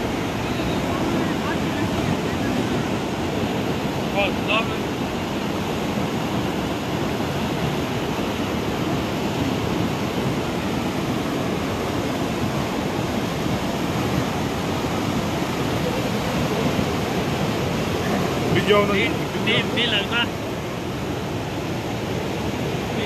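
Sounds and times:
river rushing: 0.0 - 23.0.

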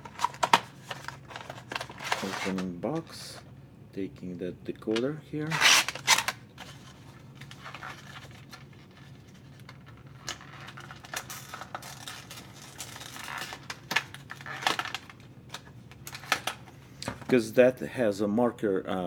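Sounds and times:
packaging crinkling and rustling: 0.0 - 3.4, 5.5 - 16.6.

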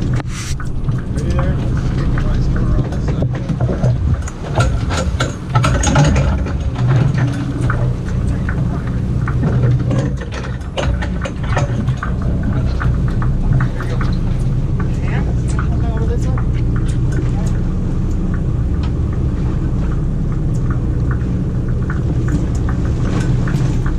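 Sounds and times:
boat engine idling: 0.0 - 23.9
gear clicking and knocking on deck: 0.7 - 17.6.

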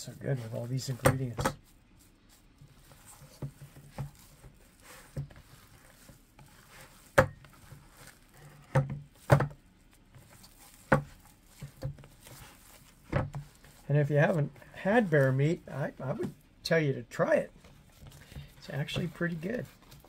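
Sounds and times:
hands squelching meat mixture: 0.1 - 15.6.

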